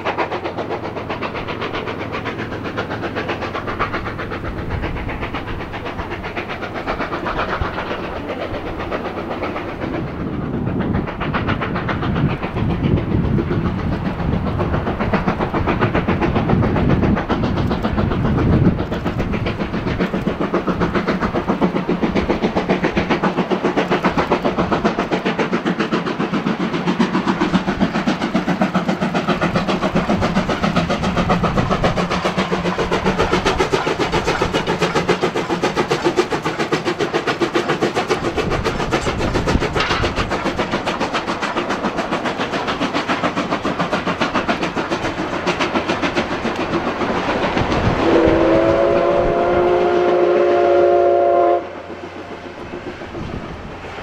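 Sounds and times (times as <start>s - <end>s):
coach wheels clattering: 0.0s - 49.7s
steam locomotive exhaust beat: 0.0s - 54.0s
steam whistle blast: 48.0s - 51.9s.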